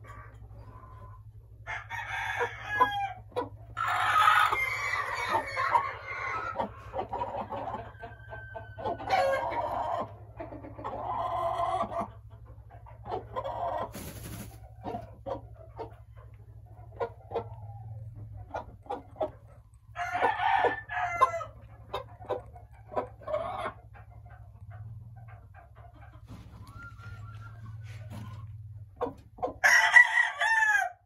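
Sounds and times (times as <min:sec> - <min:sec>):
hen clucking and squawking: 0:00.0 - 0:31.0
feathers fluttering: 0:13.9 - 0:14.6.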